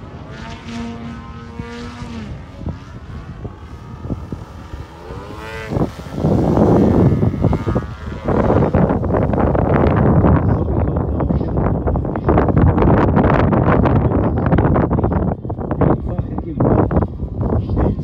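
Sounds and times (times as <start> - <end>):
model plane engine droning: 0.0 - 13.8.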